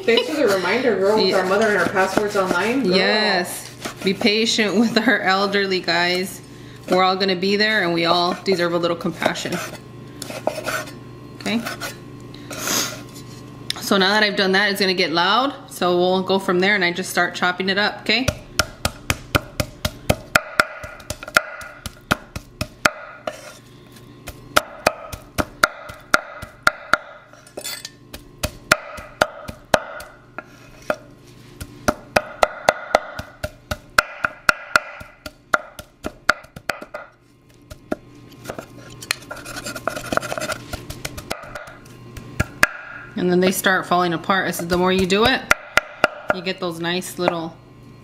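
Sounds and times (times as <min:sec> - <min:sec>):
cleaver chopping on wooden board: 0:18.6 - 0:23.4, 0:24.2 - 0:27.2, 0:28.1 - 0:30.2, 0:31.6 - 0:38.6, 0:39.3 - 0:41.8, 0:42.4 - 0:43.0, 0:44.7 - 0:46.4.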